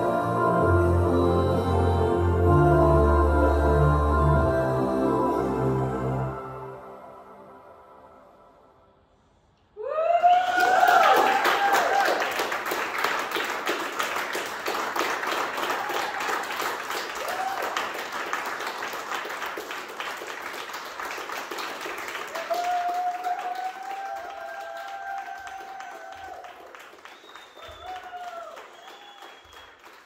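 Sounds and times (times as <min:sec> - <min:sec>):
audience applauding: 0:10.2 - 0:30.0.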